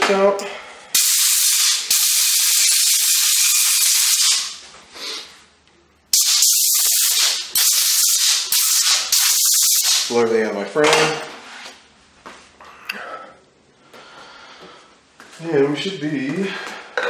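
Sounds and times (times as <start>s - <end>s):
compressed air blow gun hissing: 1.0s - 4.6s, 6.2s - 10.1s.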